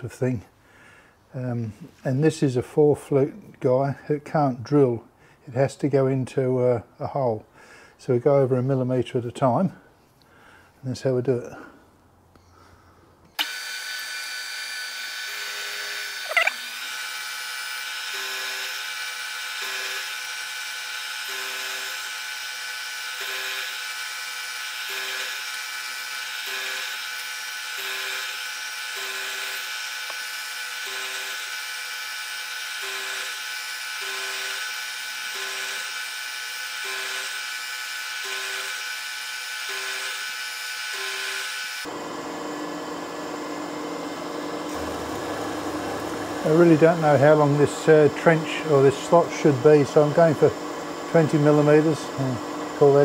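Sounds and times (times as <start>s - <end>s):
milling machine cutting steel: 13.4s - 53.0s.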